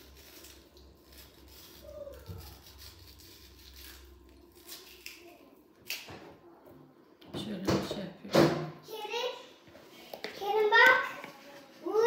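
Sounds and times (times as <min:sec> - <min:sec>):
spoon scraping potato: 0:00.0 - 0:05.1.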